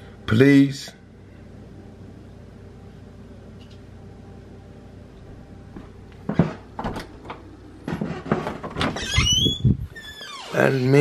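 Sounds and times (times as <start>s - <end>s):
low room hum: 0.0s - 11.0s
door clunking and rattling: 6.3s - 10.2s.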